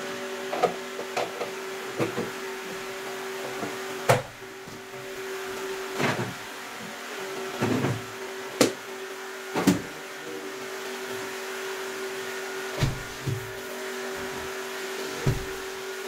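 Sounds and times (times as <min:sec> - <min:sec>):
steady machine hum: 0:12.6 - 0:16.0.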